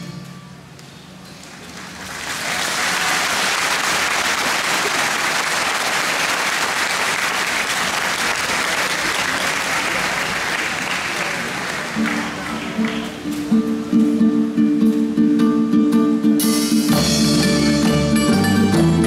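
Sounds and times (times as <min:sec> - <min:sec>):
audience applause: 0:01.4 - 0:13.2.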